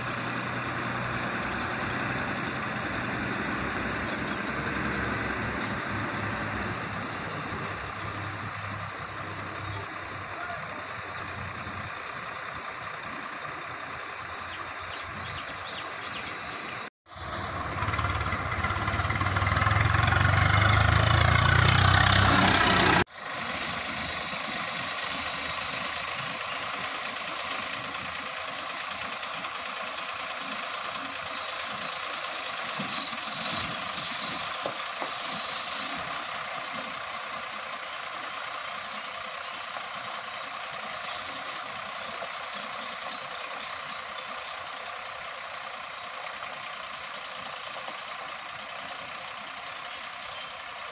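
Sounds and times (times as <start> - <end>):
diesel lorry engine running: 0.0 - 50.9.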